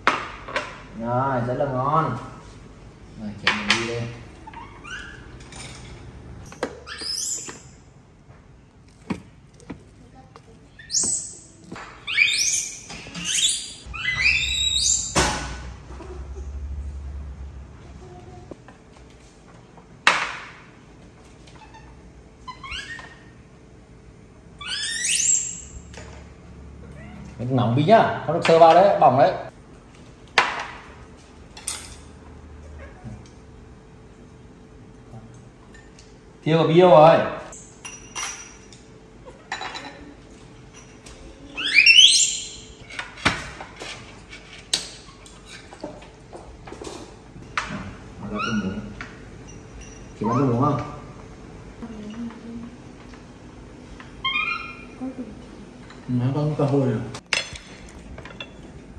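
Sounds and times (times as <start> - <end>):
baby monkey squeaky calls: 4.4 - 5.3, 6.8 - 7.7, 10.8 - 15.2, 24.6 - 25.8, 41.5 - 42.8, 54.2 - 55.0
chopsticks and bowls clinking: 57.2 - 58.8.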